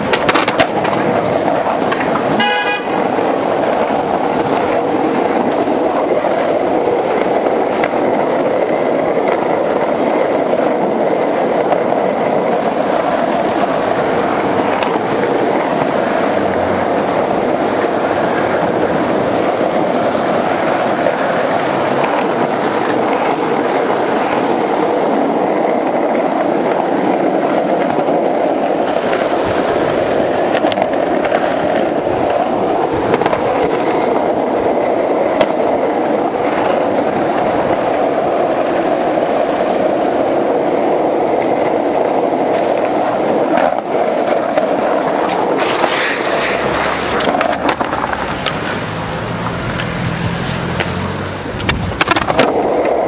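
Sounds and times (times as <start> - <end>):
skateboard knocks: 0.0 - 24.7, 25.5 - 37.8, 41.3 - 50.0, 50.8 - 53.0
skateboard wheels rolling: 0.0 - 53.0
car driving past: 48.1 - 51.5.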